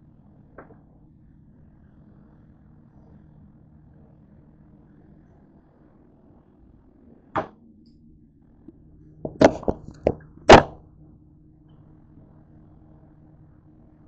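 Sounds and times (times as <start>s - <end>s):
knocks on hard countertop: 9.3s - 10.8s.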